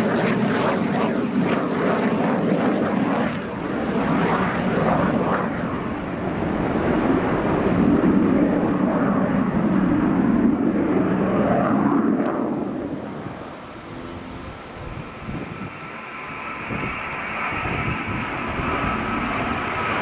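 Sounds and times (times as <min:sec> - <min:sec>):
jet noise: 0:00.0 - 0:20.0
steady high whine: 0:04.8 - 0:20.0.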